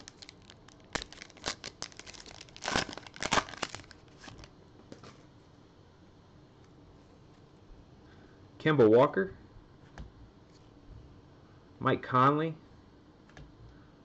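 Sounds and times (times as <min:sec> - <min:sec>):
cards rustling in hands: 0:00.0 - 0:04.5
foil wrapper tearing and crinkling: 0:00.0 - 0:04.5.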